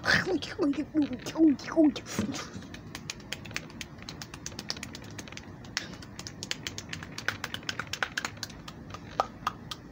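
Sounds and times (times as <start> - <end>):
beatboxing mouth clicks and pops: 2.6 - 9.9.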